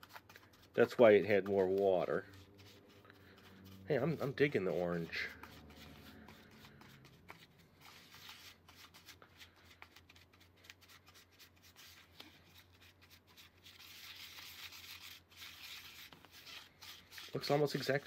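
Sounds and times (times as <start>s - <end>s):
dough scraping in bowl: 0.0s - 9.2s.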